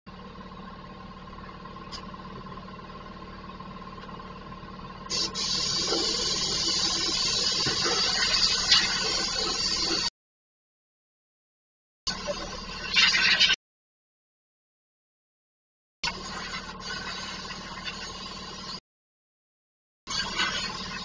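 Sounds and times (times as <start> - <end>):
low background hum: 0.1 - 10.0
compressed air hissing: 5.1 - 10.1.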